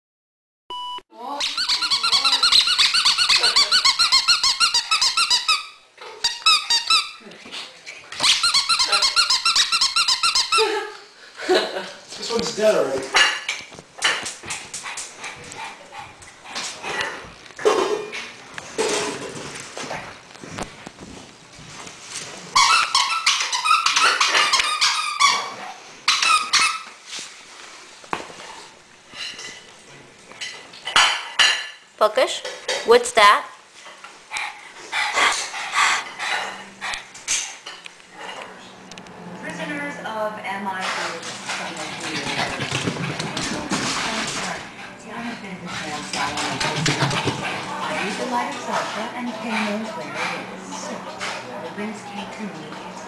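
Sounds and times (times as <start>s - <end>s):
dog squealing high-pitched squeaks: 1.4s - 7.2s, 8.2s - 10.8s, 22.6s - 27.0s.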